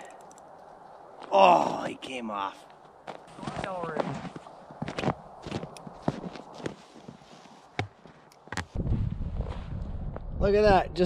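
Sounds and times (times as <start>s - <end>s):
footsteps on packed snow: 2.5s - 9.8s.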